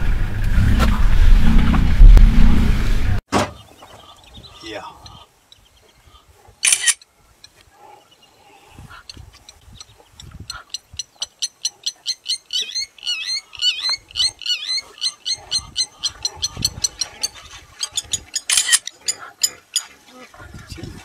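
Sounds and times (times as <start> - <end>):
low thuds: 0.0 - 3.6
warbling animal calls: 7.6 - 21.0.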